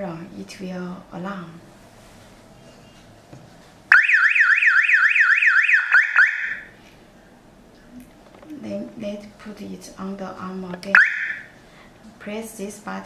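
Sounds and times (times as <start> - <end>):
car alarm siren warbling: 3.9 - 6.7, 10.9 - 11.5.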